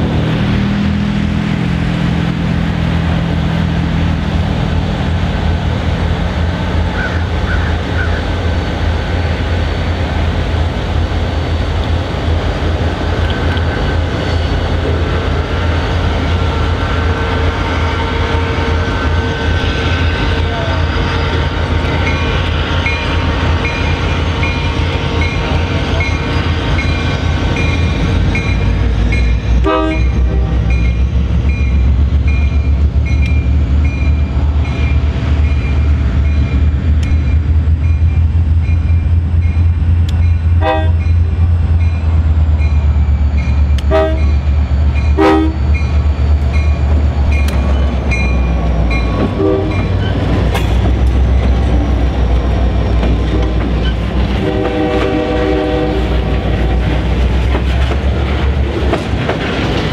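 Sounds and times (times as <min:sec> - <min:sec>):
boxcars rolling: 0:00.0 - 0:59.9
diesel locomotives rumbling: 0:00.0 - 0:59.9
locomotive bell ringing: 0:17.3 - 0:53.0.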